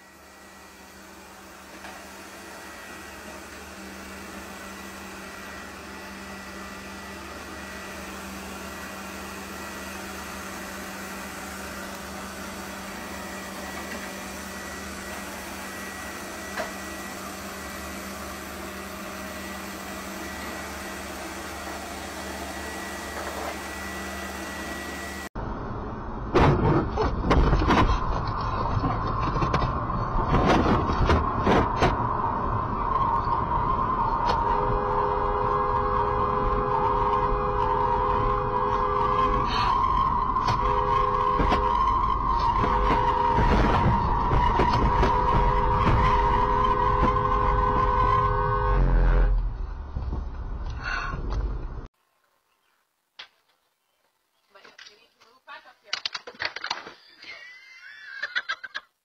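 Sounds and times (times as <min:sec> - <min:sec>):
robot vacuum cleaner whirring: 0:00.0 - 0:25.3, 0:29.0 - 0:49.4
car road noise: 0:25.4 - 0:51.9
steady tone: 0:31.3 - 0:49.9.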